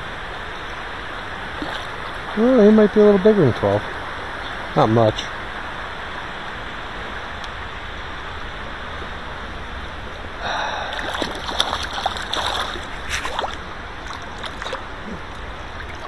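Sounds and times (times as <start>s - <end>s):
stream rushing: 0.0s - 16.0s
fish splashing at surface: 10.9s - 16.0s.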